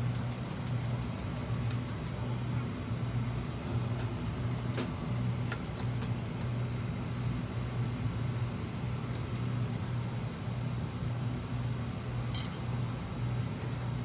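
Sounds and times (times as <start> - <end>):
steady low hum: 0.0 - 14.0
stove igniter clicking: 0.1 - 2.2.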